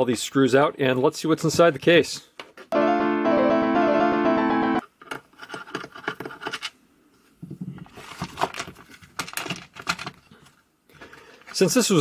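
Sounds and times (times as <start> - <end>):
plastic case clicking and scraping: 7.8 - 10.3.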